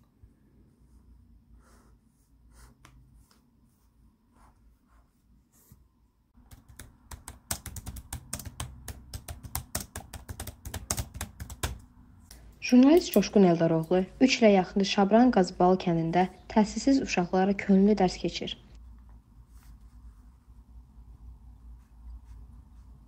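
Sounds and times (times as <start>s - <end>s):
fast typing on laptop keyboard: 6.4s - 11.9s.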